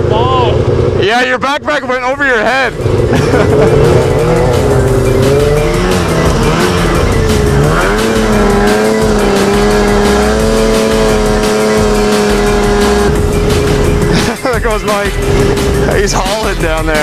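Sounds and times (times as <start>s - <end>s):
snowmobile engine under throttle: 2.2s - 17.0s.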